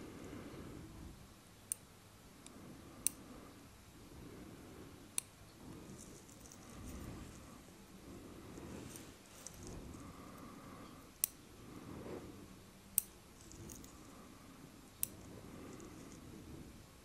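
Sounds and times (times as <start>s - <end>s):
fingers rustling on skin: 5.6s - 11.0s, 13.3s - 14.2s.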